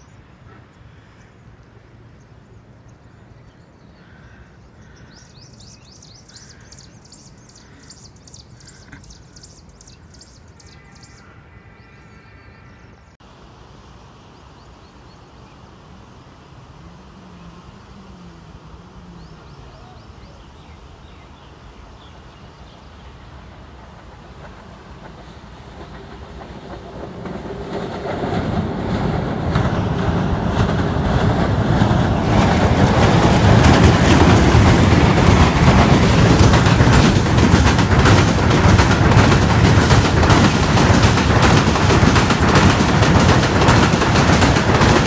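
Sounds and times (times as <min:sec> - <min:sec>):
birds calling: 0:00.0 - 0:13.2
background hiss and rumble: 0:00.0 - 0:45.0.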